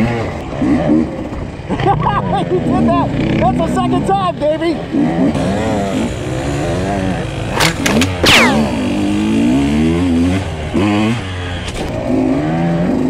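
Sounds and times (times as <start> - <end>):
dirt bike engine revving: 0.0 - 13.0
sharp clicks: 7.6 - 8.7.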